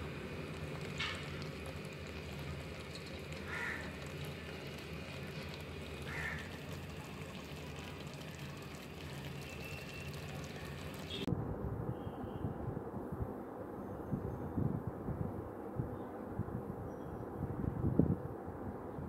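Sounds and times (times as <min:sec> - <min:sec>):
curry simmering in a pan: 0:00.0 - 0:11.3.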